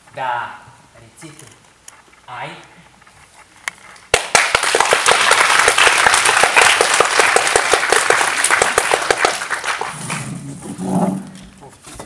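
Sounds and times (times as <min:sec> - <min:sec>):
audience applauding: 0:04.1 - 0:10.4.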